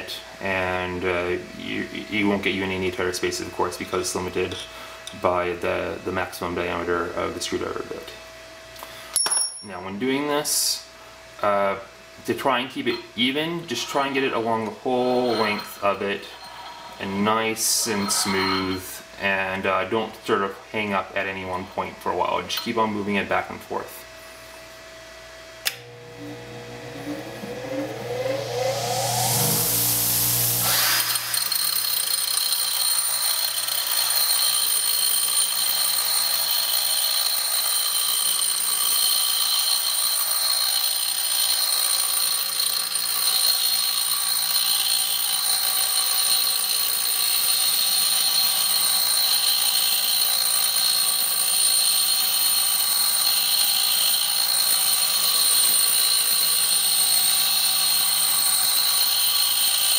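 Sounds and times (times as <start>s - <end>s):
metal bit grinding on wheel: 12.9s - 18.8s, 27.8s - 59.9s
bench grinder motor whine: 13.5s - 18.8s, 25.6s - 59.9s.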